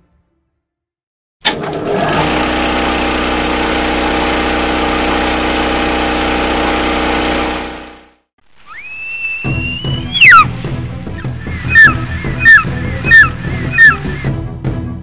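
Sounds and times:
film projector whirring and clattering: 1.4 - 8.0.

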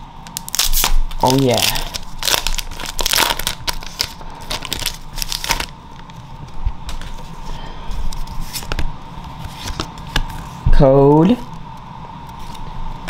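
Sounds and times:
foil wrapper crinkling: 0.3 - 7.3.

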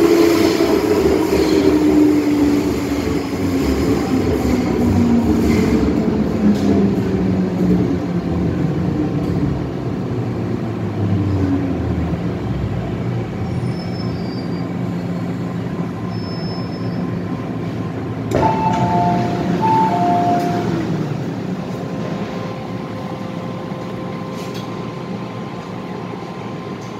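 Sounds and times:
train traction motor whine: 18.3 - 26.9.

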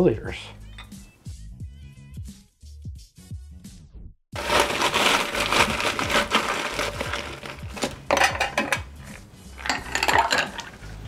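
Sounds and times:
ice cubes clattering: 4.4 - 11.0.

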